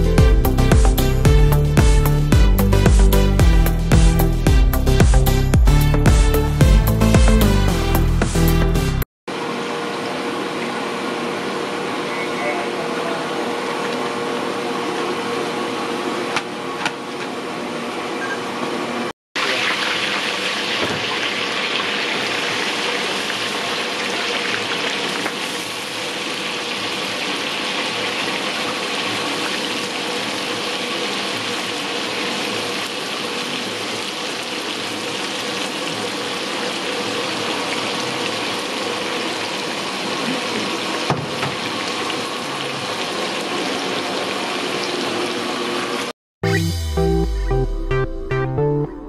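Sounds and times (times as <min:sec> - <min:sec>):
water boiling hard in a pot: 0:09.3 - 0:18.1, 0:19.4 - 0:46.1.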